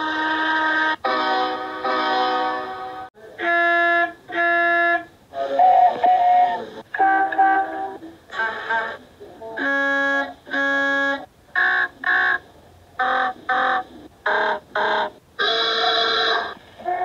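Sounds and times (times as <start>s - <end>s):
cartoon lorry horn honks: 0.0s - 7.9s, 9.6s - 12.4s.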